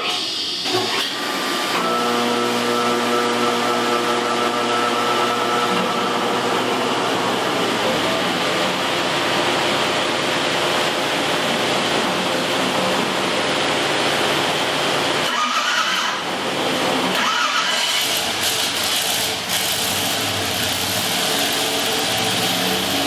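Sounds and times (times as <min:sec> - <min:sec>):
mechanical drone with held tones: 0:01.8 - 0:09.6.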